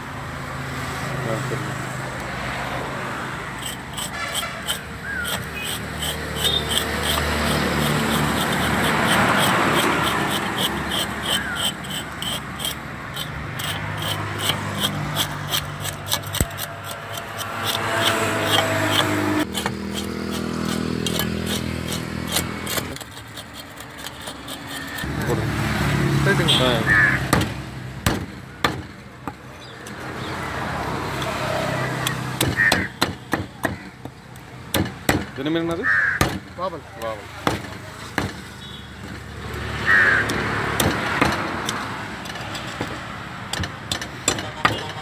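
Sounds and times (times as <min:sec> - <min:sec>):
road traffic hum: 0:00.0 - 0:45.0
blade scraping fish scales: 0:03.5 - 0:25.4.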